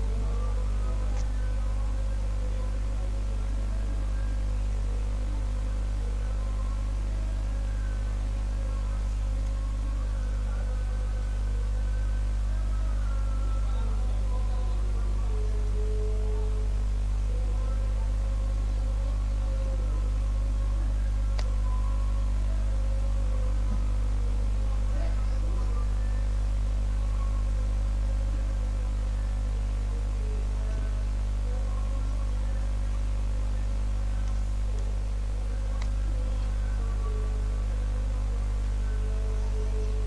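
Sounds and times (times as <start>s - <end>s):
electrical mains hum: 0.0s - 40.0s.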